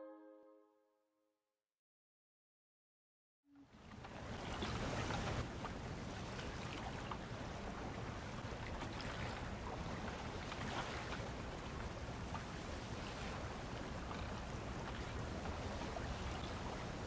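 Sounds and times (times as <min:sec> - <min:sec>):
water-like rushing noise: 0:03.7 - 0:17.0
faint ticks: 0:14.0 - 0:15.6.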